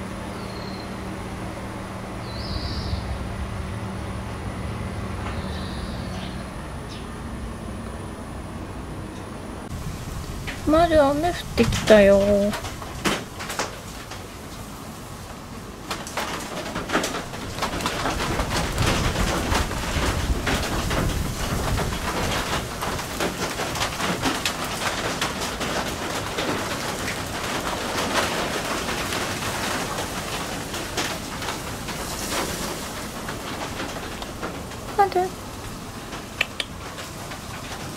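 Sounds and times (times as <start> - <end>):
rain drops on leaves: 9.6 - 37.9.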